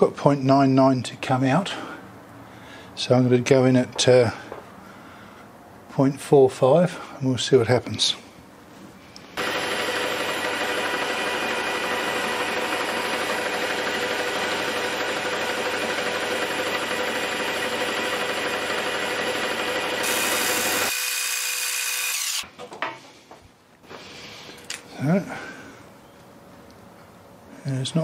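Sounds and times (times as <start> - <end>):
cutting tool hissing: 9.4 - 22.4
metal lathe whining: 9.4 - 22.4.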